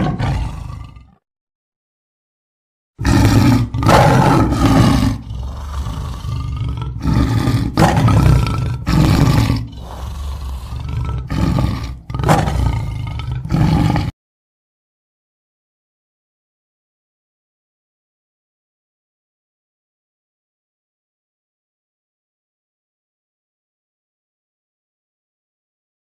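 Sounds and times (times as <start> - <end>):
animal roars and growls: 0.0 - 1.2, 3.0 - 14.2.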